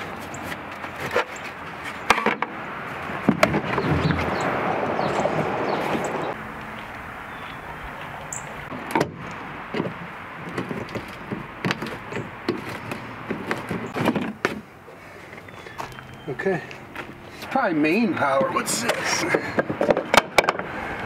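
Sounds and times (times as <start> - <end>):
knocks and scrapes: 0.0 - 6.4, 8.7 - 14.7.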